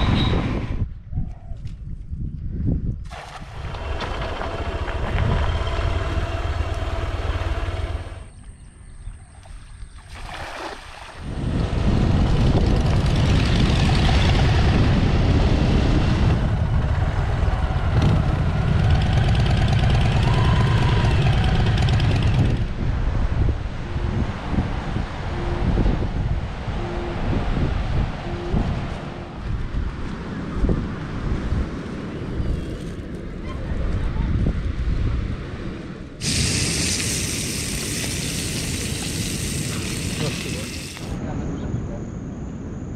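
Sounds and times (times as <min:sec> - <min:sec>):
wind rushing over microphone: 0:00.0 - 0:08.3, 0:10.2 - 0:42.9
motorcycle engine running: 0:03.6 - 0:08.3, 0:11.6 - 0:22.7.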